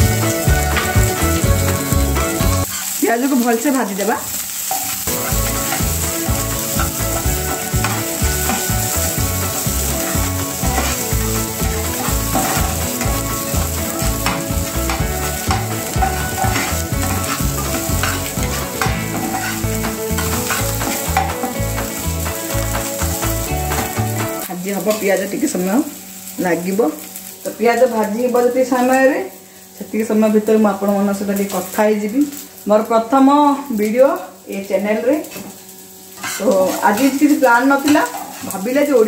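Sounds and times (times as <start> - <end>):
onions sizzling in a frying pan: 0.0 - 39.0
metal spoon scraping a pan: 2.6 - 3.0, 4.6 - 24.0, 36.1 - 38.6.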